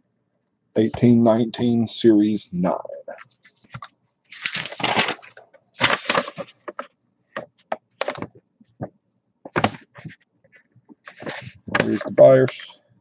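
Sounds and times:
paper rustling and crackling: 3.4s - 6.9s, 8.0s - 8.4s, 11.0s - 12.2s.

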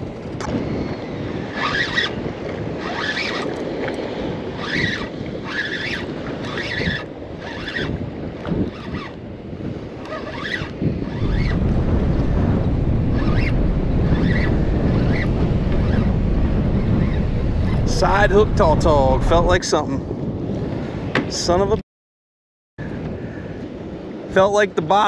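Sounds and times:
choppy sea water: 0.0s - 21.7s, 22.8s - 25.0s
wind buffeting microphone: 0.0s - 21.8s, 22.8s - 25.0s
deep rumble: 11.1s - 20.6s.

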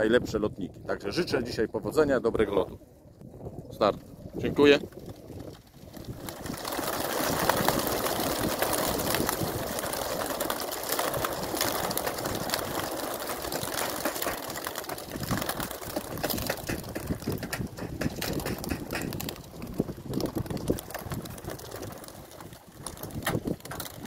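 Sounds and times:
flock of pigeons flapping wings: 4.0s - 24.0s.

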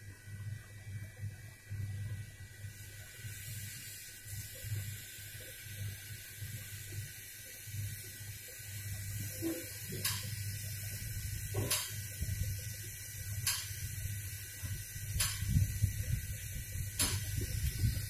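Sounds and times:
sharp ticks: 13.4s - 13.7s, 15.1s - 15.5s
hot air gun blowing: 14.6s - 18.0s.

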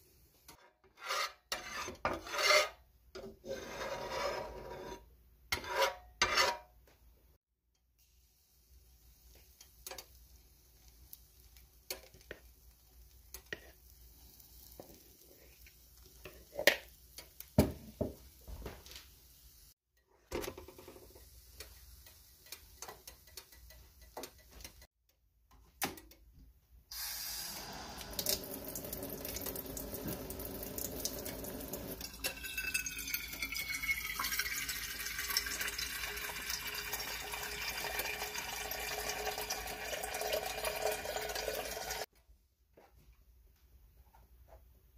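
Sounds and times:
water running in kitchen sink: 26.9s - 42.1s
water pouring into glass carafe: 27.5s - 42.0s.

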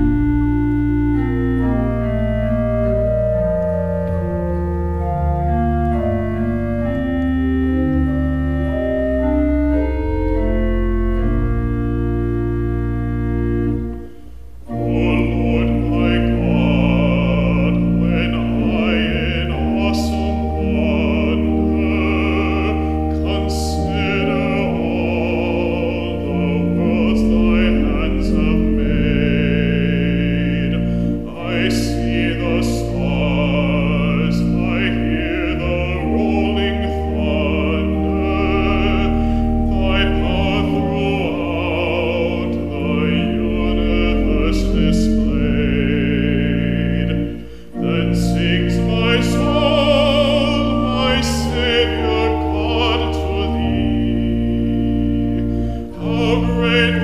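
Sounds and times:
church organ chords: 0.0s - 57.0s
man singing with vibrato: 14.7s - 57.0s.

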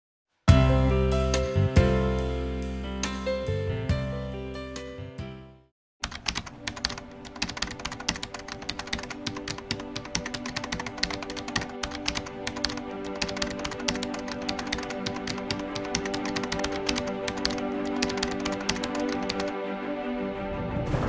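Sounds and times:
background music: 0.5s - 21.0s
rapid keyboard typing: 6.0s - 19.5s.

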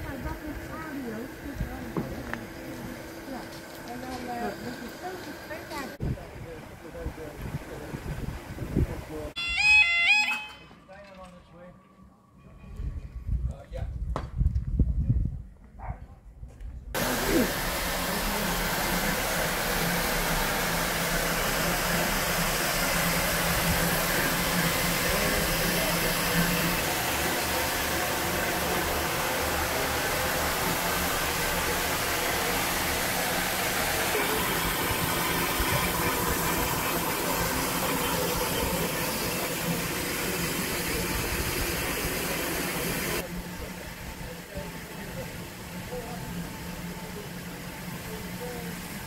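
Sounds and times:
hiss of escaping steam: 17.0s - 43.2s.

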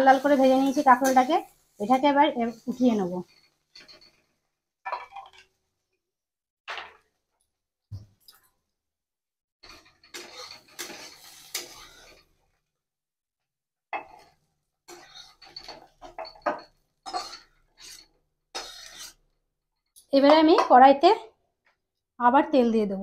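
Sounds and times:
steel spatula scraping a pan: 0.0s - 5.4s, 9.6s - 12.7s, 14.0s - 19.4s.

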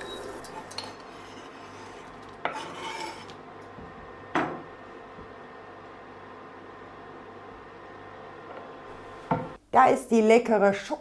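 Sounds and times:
whisk scraping in saucepan: 0.0s - 3.4s
scraping off cutting board: 0.5s - 3.4s.

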